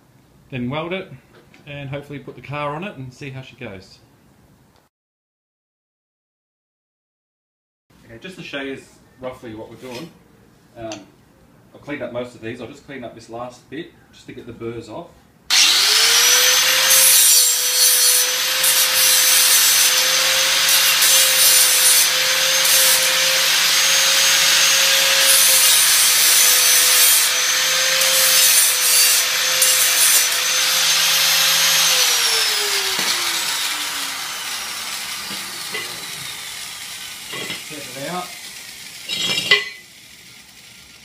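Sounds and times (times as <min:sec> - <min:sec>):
grinder winding down whine: 0:15.5 - 0:39.1
angle grinder grinding steel: 0:15.5 - 0:41.0.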